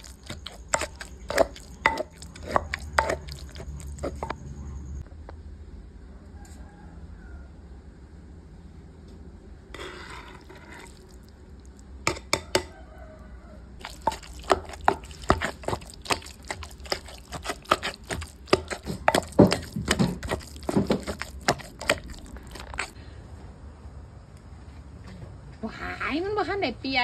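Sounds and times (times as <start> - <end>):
pestle pounding in a mortar: 0.0 - 4.4, 13.8 - 23.0.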